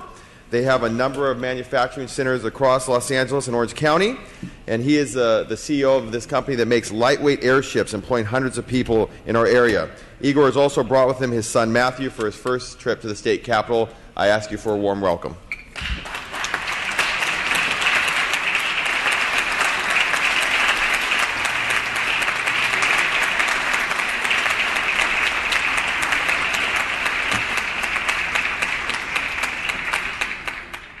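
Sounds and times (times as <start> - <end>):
crowd applause: 15.8 - 31.0.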